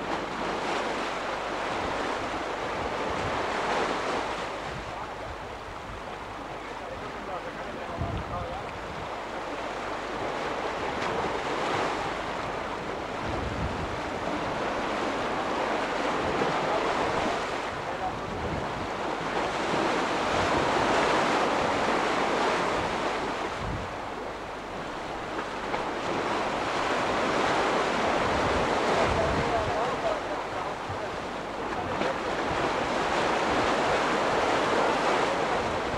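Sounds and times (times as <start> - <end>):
wind buffeting microphone: 7.8 - 9.3, 10.3 - 35.9.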